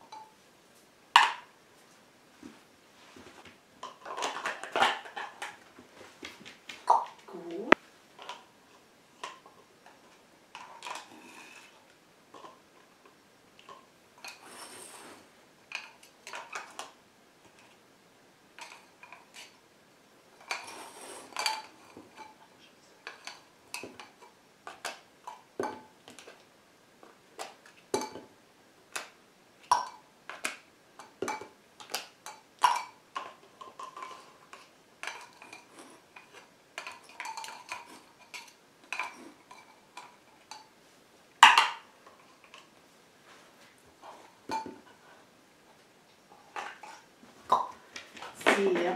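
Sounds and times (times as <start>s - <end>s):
plastic cups clacking: 1.2s - 1.5s, 3.8s - 15.0s, 15.7s - 17.8s, 18.6s - 19.6s, 20.4s - 22.4s, 23.0s - 28.3s, 28.9s - 40.7s, 41.4s - 42.8s, 44.0s - 45.2s, 46.3s - 48.9s.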